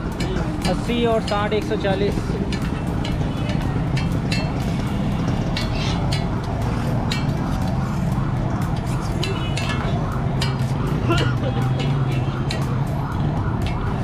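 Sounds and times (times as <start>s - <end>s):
knife striking steel griddle: 5.5s - 6.3s.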